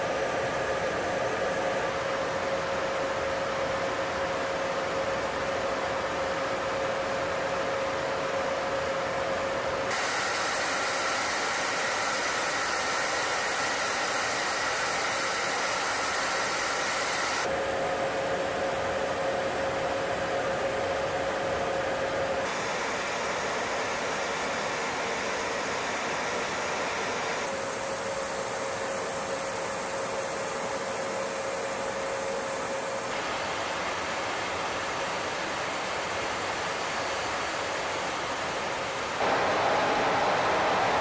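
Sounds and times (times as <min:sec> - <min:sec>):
aircraft airflow and engines rushing: 0:09.8 - 0:18.0, 0:39.2 - 0:41.0.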